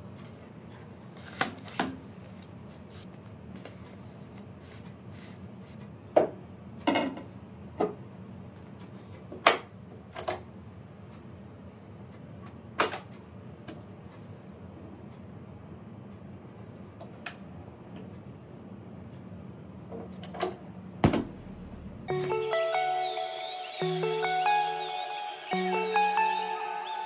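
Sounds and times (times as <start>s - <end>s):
vinyl record handling knocks: 21.0s - 21.5s.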